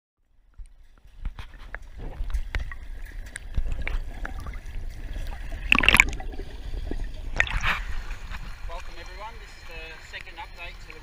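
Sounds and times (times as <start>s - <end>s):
water sloshing and gurgling: 0.2s - 11.0s
knocks underwater: 0.6s - 8.6s
loud splash: 5.6s - 6.5s, 7.3s - 8.3s.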